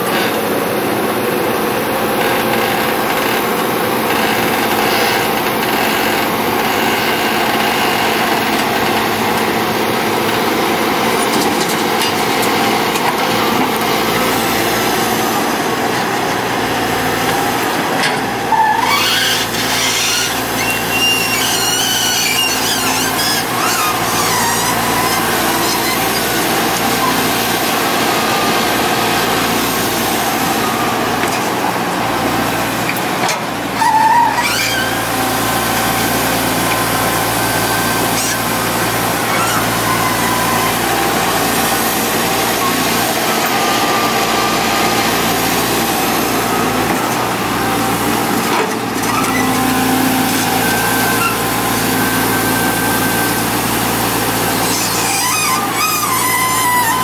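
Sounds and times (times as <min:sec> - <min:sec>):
excavator diesel engine running: 0:00.0 - 0:57.0
rising squeal: 0:18.5 - 0:27.4, 0:36.8 - 0:41.8, 0:49.0 - 0:57.0
high squeaks: 0:18.6 - 0:27.4, 0:33.8 - 0:41.8, 0:48.5 - 0:57.0.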